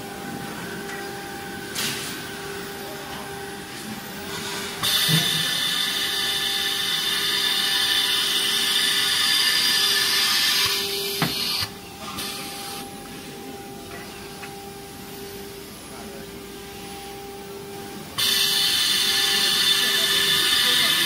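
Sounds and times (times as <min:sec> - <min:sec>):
machine hum: 0:00.0 - 0:21.0
high-pitched hissing whine: 0:04.6 - 0:17.5, 0:18.1 - 0:21.0.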